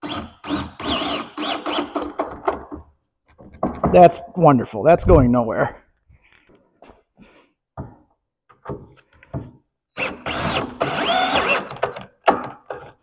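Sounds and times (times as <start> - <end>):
power drill motor: 0.0 - 2.1, 10.0 - 12.0.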